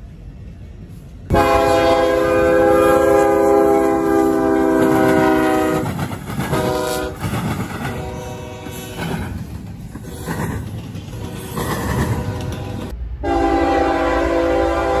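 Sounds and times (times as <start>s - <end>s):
train wheels rumbling on rails: 0.0s - 15.0s
locomotive horn blasts: 1.3s - 7.2s, 7.9s - 9.0s, 11.2s - 15.0s.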